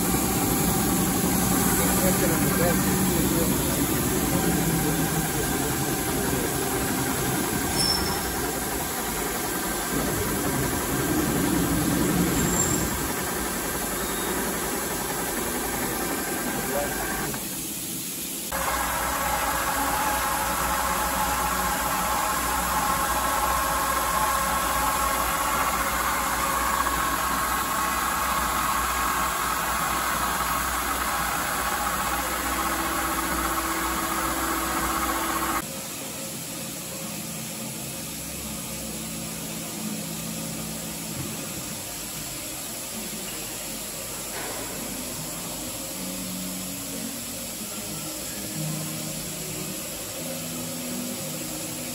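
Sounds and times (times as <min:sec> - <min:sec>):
lathe drive whining: 0:00.0 - 0:17.6, 0:18.5 - 0:35.6.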